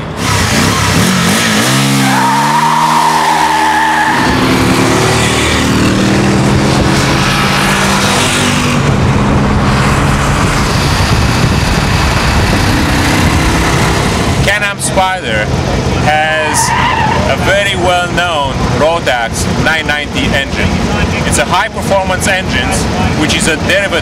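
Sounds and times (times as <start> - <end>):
engine revving: 0.0 - 21.6
tyre squealing: 0.5 - 5.9, 16.2 - 17.7.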